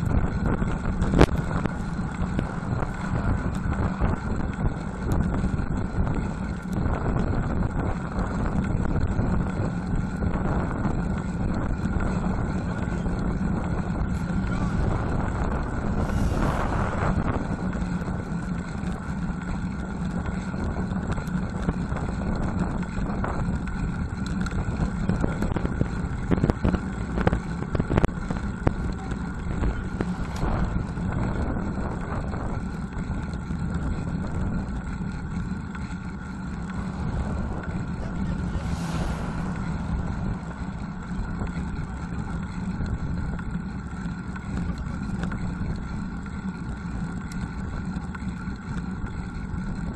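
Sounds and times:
wind and road rumble: 0.0s - 49.9s
passing car rush: 13.6s - 19.3s, 28.7s - 32.8s, 35.6s - 43.3s.

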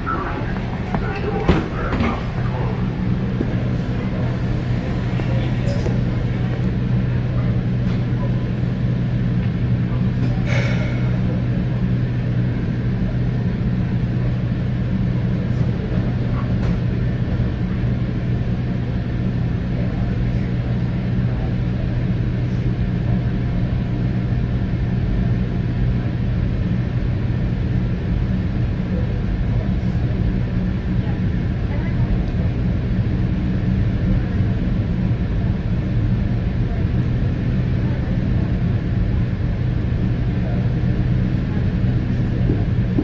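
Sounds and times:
train rumble and hum: 0.0s - 43.0s.

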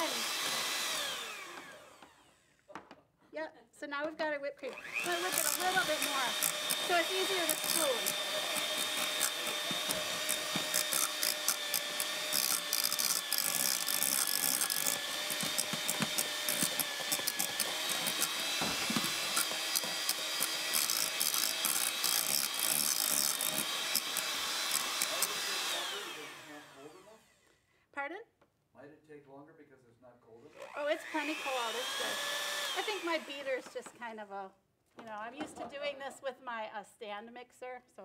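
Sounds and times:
electric hand mixer whining: 0.0s - 2.5s, 4.6s - 27.3s, 30.5s - 33.9s.

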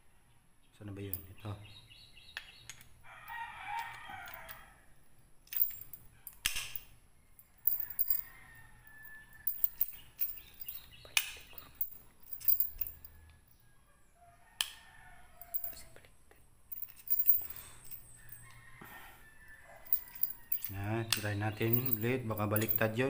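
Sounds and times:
rooster crowing: 3.0s - 4.9s, 7.8s - 9.6s, 13.0s - 15.9s, 18.2s - 20.8s
padlock shackle clicking: 5.4s - 8.2s, 9.4s - 13.1s, 15.4s - 15.8s, 16.7s - 18.6s, 19.5s - 23.0s.

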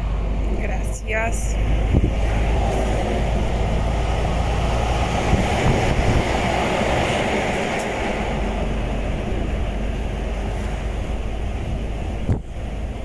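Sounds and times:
lorry engine and road rumble: 0.0s - 13.0s
rushing of wind and tyres: 0.0s - 13.0s.

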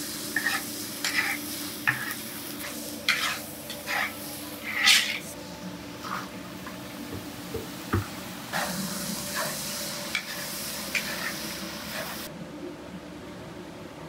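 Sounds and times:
food sizzling in a pot: 0.0s - 6.4s, 7.4s - 12.3s.

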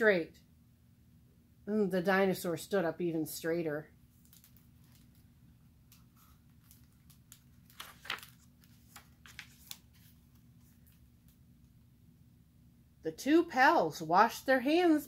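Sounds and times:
faint steady hum: 0.0s - 15.0s
paper page rustling: 4.1s - 5.3s, 5.9s - 11.4s.

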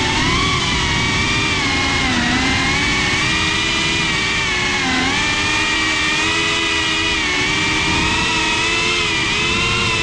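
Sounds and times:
drone motors whining: 0.0s - 10.0s.

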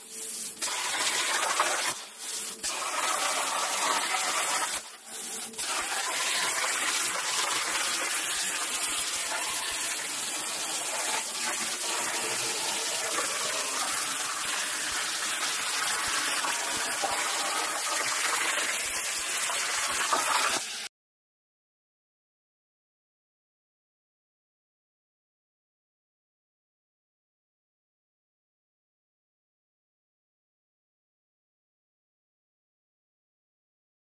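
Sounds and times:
plasma torch hissing: 0.0s - 20.9s.

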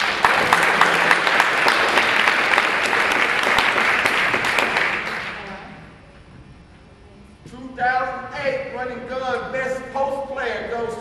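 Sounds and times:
crowd applause: 0.0s - 5.7s.

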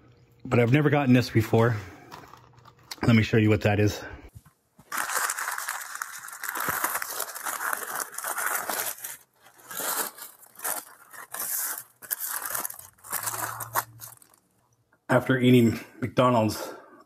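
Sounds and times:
paper wrapper crinkling: 2.0s - 3.2s, 4.8s - 14.8s.

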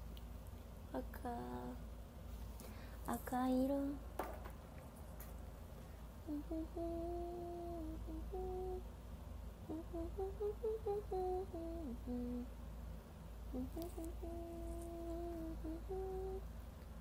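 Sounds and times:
woman humming a tune: 6.2s - 8.9s, 9.6s - 12.5s, 13.5s - 16.5s.

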